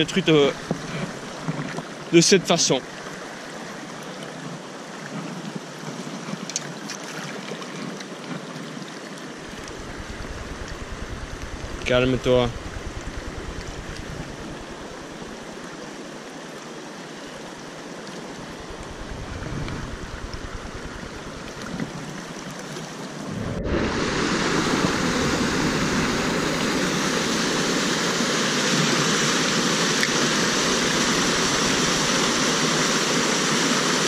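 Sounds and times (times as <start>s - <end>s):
stream burbling over stones: 0.0s - 10.4s, 23.8s - 34.0s
water rushing through cascade: 0.0s - 34.0s.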